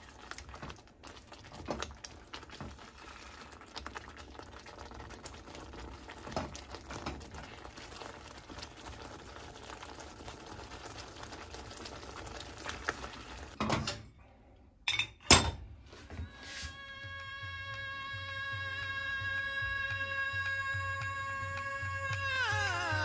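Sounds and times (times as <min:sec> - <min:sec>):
sauce bubbling and spitting: 0:00.0 - 0:13.6.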